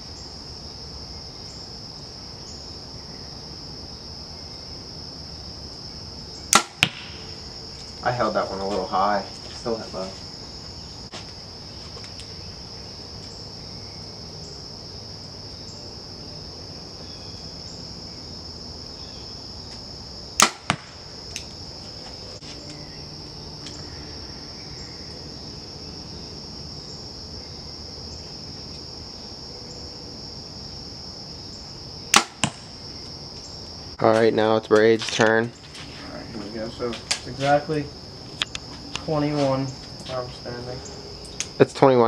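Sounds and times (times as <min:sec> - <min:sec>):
insects chirring: 0:00.0 - 0:42.0
bow string snapping: 0:06.5 - 0:07.1, 0:20.4 - 0:21.5, 0:32.1 - 0:32.6
arrow striking target: 0:06.5 - 0:07.2, 0:20.4 - 0:21.0, 0:32.1 - 0:32.7.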